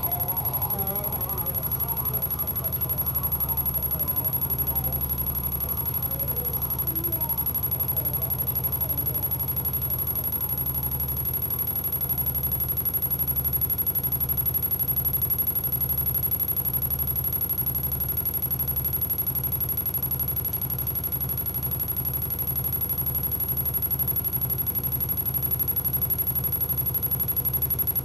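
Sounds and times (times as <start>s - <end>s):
low throbbing pulse: 0.0s - 11.4s
high-pitched whine: 0.0s - 12.4s.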